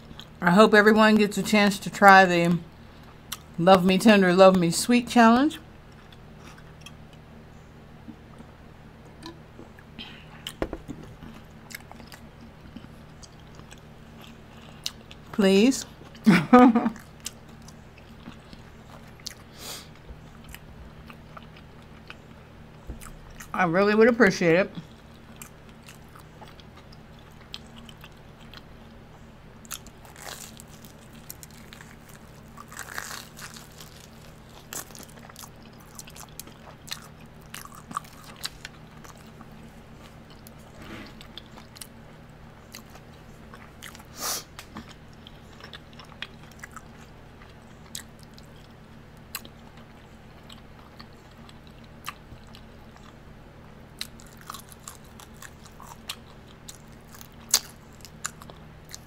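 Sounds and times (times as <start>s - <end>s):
faint low hum: 0.0s - 59.0s
person chewing crunchy food: 5.9s - 7.3s, 9.2s - 15.3s, 17.0s - 23.5s, 24.8s - 42.0s, 42.6s - 53.2s, 53.9s - 59.0s.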